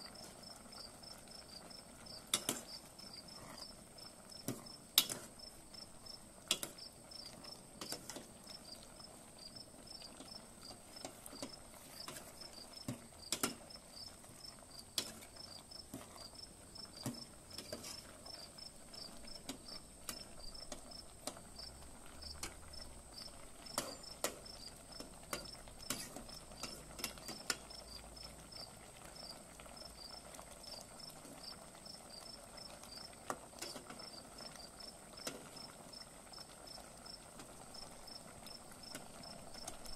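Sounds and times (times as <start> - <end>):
crickets chirping: 0.2 - 4.8, 8.5 - 12.8, 13.7 - 32.3, 32.9 - 33.1, 34.0 - 39.6
ladle scraping metal pot: 17.5 - 18.2, 25.3 - 27.6.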